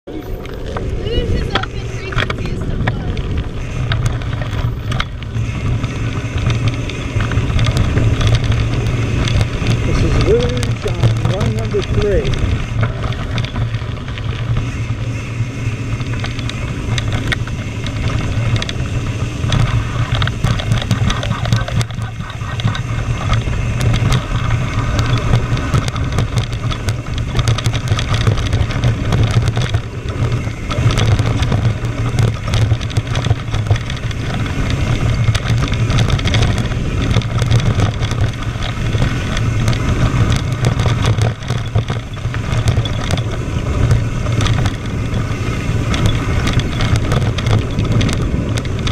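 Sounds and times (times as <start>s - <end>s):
wind rushing over microphone: 0.0s - 48.9s
tyre rumble on gravel: 0.5s - 14.6s
bike knocks and rattles: 0.8s - 48.9s.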